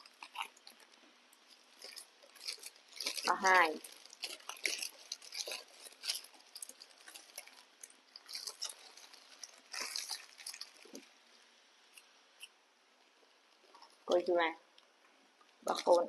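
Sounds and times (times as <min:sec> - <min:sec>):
monkeys crunching rice crackers: 0:00.0 - 0:11.1
plastic snack packets crinkling: 0:00.0 - 0:12.6, 0:15.6 - 0:16.0.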